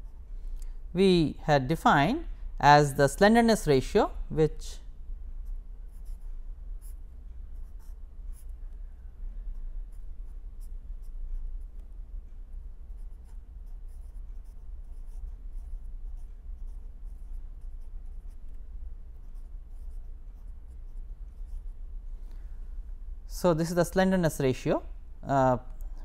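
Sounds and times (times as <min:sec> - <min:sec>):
steady low hum: 0:00.0 - 0:26.0
pen scratching on paper: 0:07.6 - 0:08.5, 0:12.9 - 0:18.5, 0:19.1 - 0:21.6.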